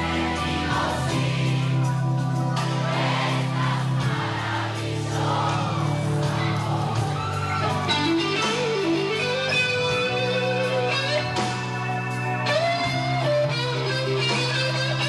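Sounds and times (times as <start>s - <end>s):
crowd voices: 0.0s - 15.0s
live rock band playing: 0.0s - 15.0s
electric guitar lead line: 7.4s - 15.0s.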